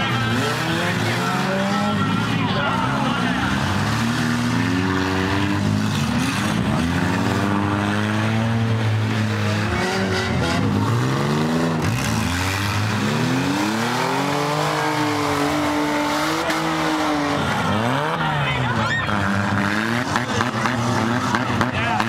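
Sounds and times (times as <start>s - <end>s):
car engines revving: 0.0s - 22.0s.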